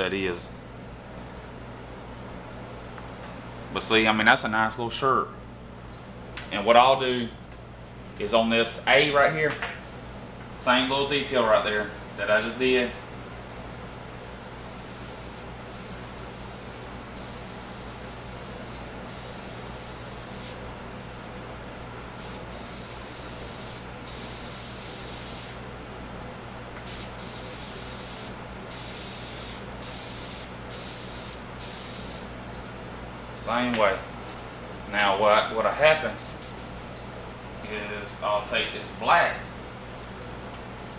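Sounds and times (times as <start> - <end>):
steady low hum: 0.0 - 40.9
airbrush spraying bursts: 10.7 - 20.6, 22.2 - 25.6, 26.9 - 32.3, 36.0 - 36.8.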